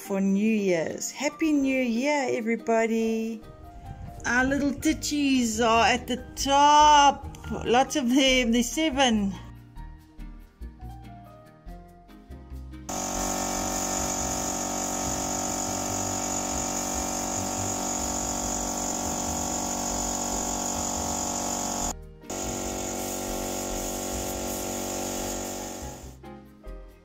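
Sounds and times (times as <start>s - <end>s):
spray gun motor hissing: 12.9s - 26.2s.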